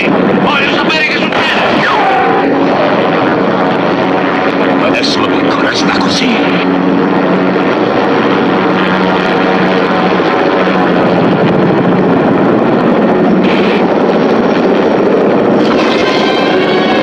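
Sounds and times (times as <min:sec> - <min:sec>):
helicopter hovering: 0:00.0 - 0:17.0.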